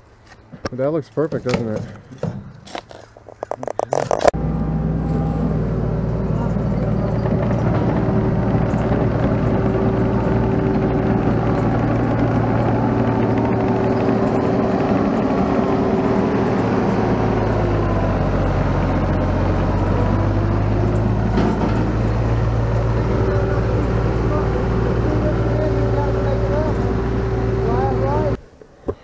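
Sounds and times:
diesel engine running: 0:03.6 - 0:28.4.

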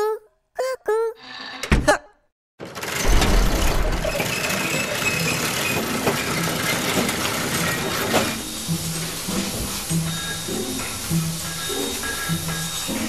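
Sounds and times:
factory machinery din: 0:02.6 - 0:13.0.

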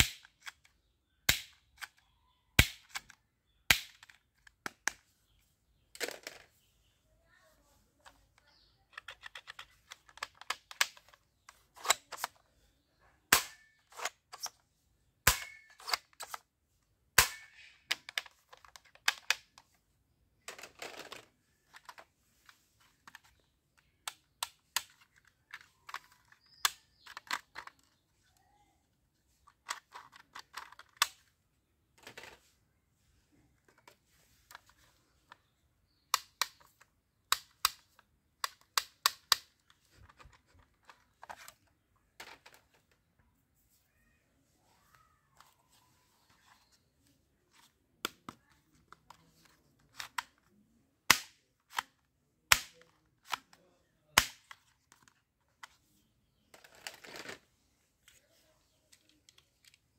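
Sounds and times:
plastic toy guns clicking: 0:00.0 - 0:02.0, 0:02.6 - 0:05.0, 0:08.9 - 0:12.4, 0:13.3 - 0:14.6, 0:15.2 - 0:16.4, 0:17.2 - 0:19.7, 0:23.8 - 0:27.9, 0:29.6 - 0:31.3, 0:36.1 - 0:41.6, 0:51.1 - 0:53.6, 0:54.2 - 0:55.1
plastic snaps: 0:00.0 - 0:05.1, 0:35.3 - 0:41.6, 0:47.6 - 0:53.6, 0:54.2 - 0:55.8
plastic rattling: 0:05.9 - 0:06.6, 0:08.0 - 0:12.5, 0:20.4 - 0:28.0, 0:29.4 - 0:31.3, 0:56.5 - 0:57.5.

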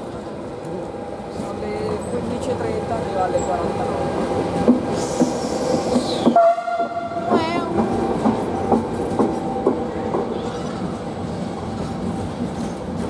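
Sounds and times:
train wheels clacking over rail joints: 0:04.5 - 0:13.0.

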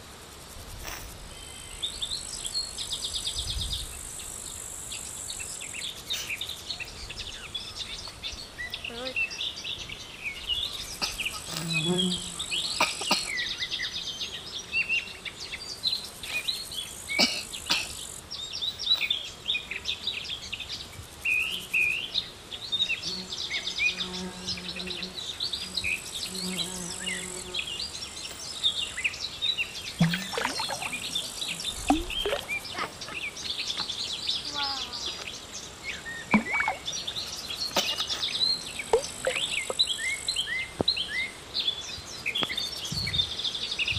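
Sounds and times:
small birds chirping and twittering: 0:00.8 - 0:43.9
fly buzzing: 0:10.9 - 0:13.2, 0:22.9 - 0:27.8, 0:30.0 - 0:33.5, 0:37.7 - 0:39.9.

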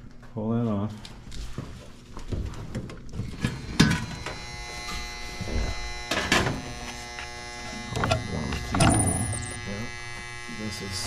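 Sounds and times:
furnace motor buzzing whine: 0:02.8 - 0:11.0.

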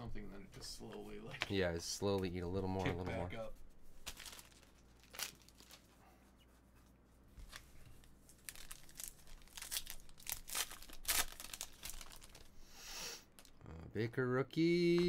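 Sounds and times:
foil wrapper crinkling and tearing: 0:04.0 - 0:05.9, 0:08.0 - 0:12.6, 0:13.4 - 0:13.6.

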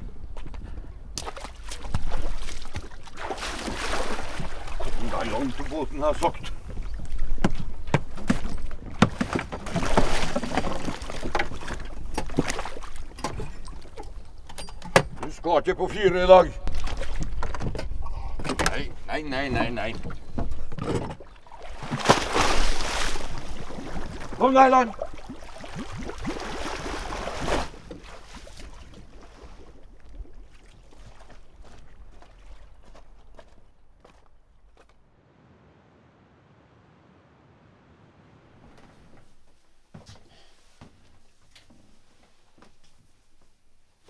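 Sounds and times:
water splashing against hull: 0:01.1 - 0:15.2, 0:16.5 - 0:33.5
boat hull scraping over stones: 0:07.3 - 0:11.8
low wind rumble: 0:35.0 - 0:39.1.

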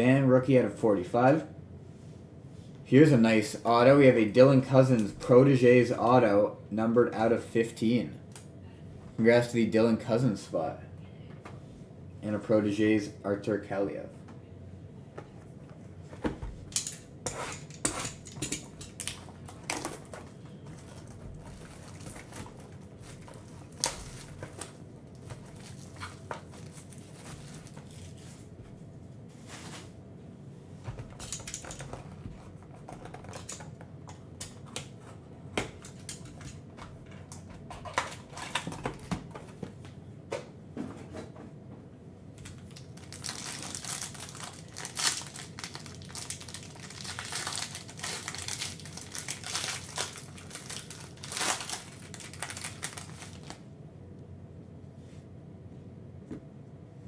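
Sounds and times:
wrapper crinkling and tearing: 0:16.8 - 0:28.3, 0:42.5 - 0:53.6.

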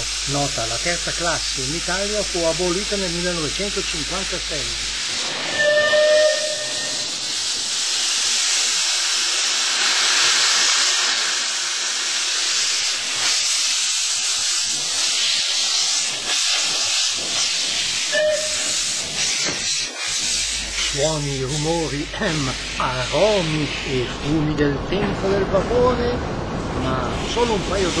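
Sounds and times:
steam hissing: 0:00.0 - 0:28.0
steam locomotive whistle: 0:05.5 - 0:07.1, 0:18.1 - 0:19.0.

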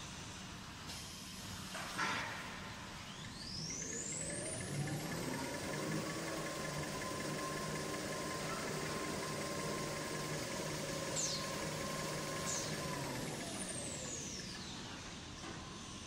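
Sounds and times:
machine hum and rattle: 0:00.6 - 0:16.0
high machine whine: 0:03.1 - 0:16.0.

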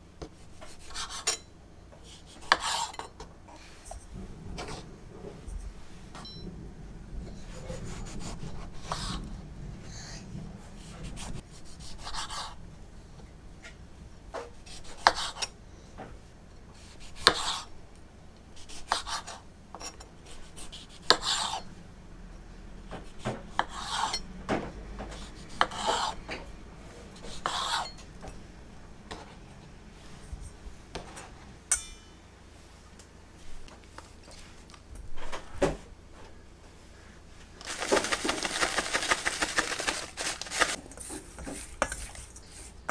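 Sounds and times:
knife slicing tomatoes: 0:02.1 - 0:03.0, 0:16.8 - 0:17.7, 0:18.6 - 0:19.4, 0:25.2 - 0:26.2.

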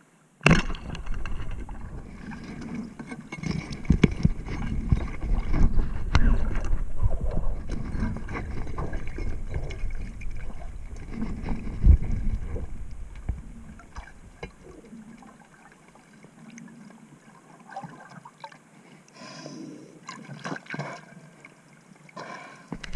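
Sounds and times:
underwater knocks: 0:00.4 - 0:14.8
muffled underwater rumble: 0:00.6 - 0:03.0, 0:03.7 - 0:15.5
soft rustling: 0:00.9 - 0:15.3.

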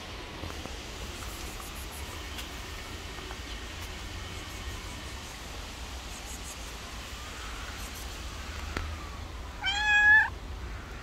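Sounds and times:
cat meowing: 0:09.6 - 0:10.4.

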